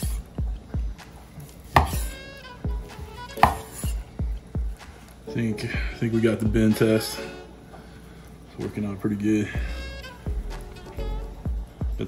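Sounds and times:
knife cutting onto wooden board: 1.7 - 2.1, 3.4 - 4.0.

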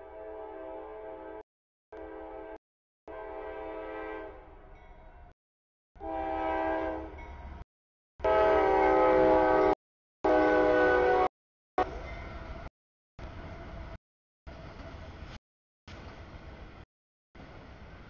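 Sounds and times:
locomotive air horn blasts: 0.0 - 1.4, 2.0 - 4.4, 6.0 - 7.2, 8.2 - 12.0.

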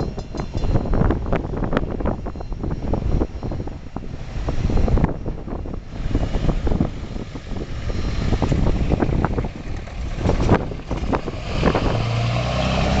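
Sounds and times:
train hopper cars rumbling: 0.0 - 13.0
wind buffeting microphone: 0.0 - 13.0
pickup truck driving past: 5.9 - 13.0.

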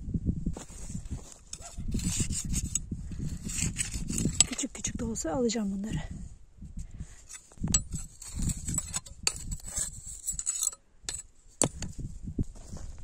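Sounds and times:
scrapes and rustles: 0.5 - 4.7, 7.0 - 13.0.

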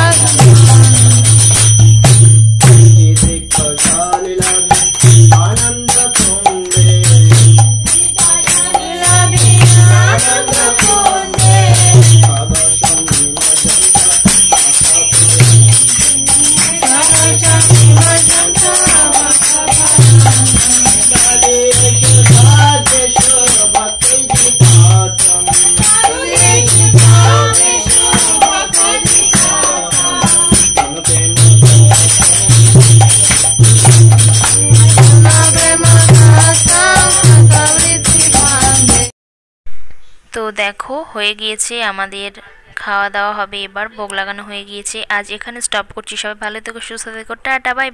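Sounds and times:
jingling bells: 0.0 - 39.1
wavering melody: 0.0 - 39.1
low drum beat: 19.8 - 23.0, 26.2 - 29.6, 30.4 - 39.1.

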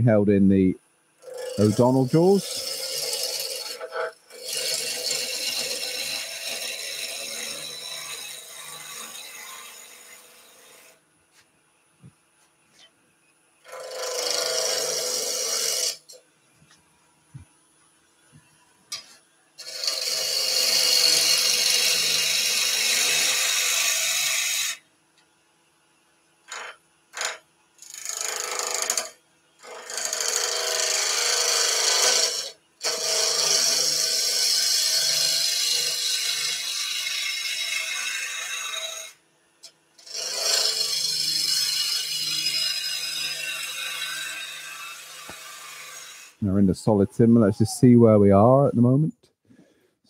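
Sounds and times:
lathe humming: 1.2 - 5.8
gouge scraping wood on lathe: 1.2 - 11.0, 13.7 - 16.1, 19.0 - 24.7, 28.0 - 39.0, 40.0 - 46.4.

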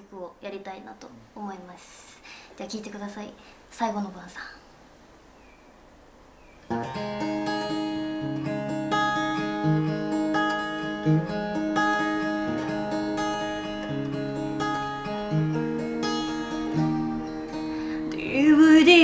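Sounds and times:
acoustic guitar picked and strummed: 6.7 - 19.0.

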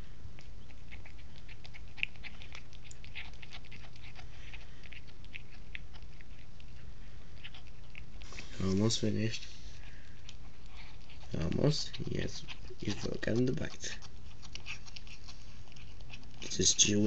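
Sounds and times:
cat chewing: 0.0 - 17.0
steady low hum: 0.0 - 17.0.

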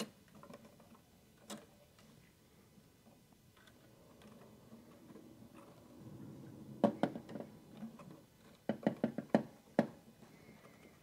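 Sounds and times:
sharp little clicks and knocks: 0.0 - 2.1, 6.8 - 11.0.

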